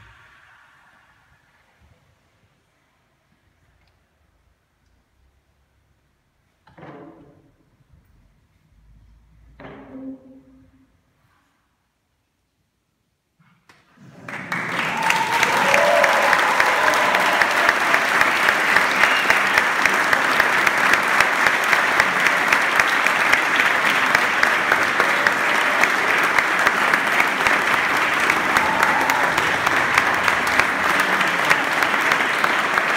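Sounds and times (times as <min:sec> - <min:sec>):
audience applauding: 0:14.0 - 0:32.9.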